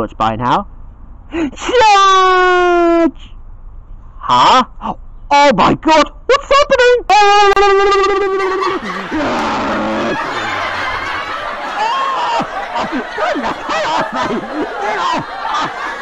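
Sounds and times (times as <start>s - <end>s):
voices laughing and squealing: 6.3s - 16.0s
long cry sliding down: 9.1s - 13.7s.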